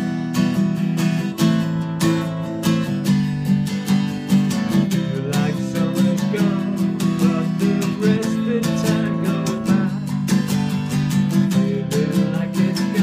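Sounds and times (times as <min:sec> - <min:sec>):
acoustic guitar strumming: 0:00.0 - 0:13.0
man singing: 0:04.5 - 0:13.0.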